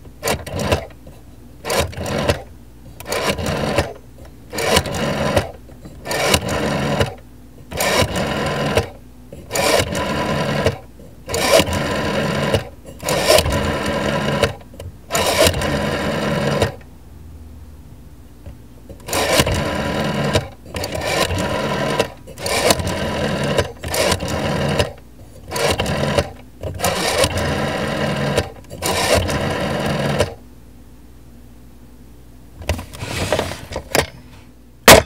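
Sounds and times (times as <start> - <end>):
rotary phone dial whirring: 0.2 - 16.8, 18.9 - 30.4, 32.6 - 35.0.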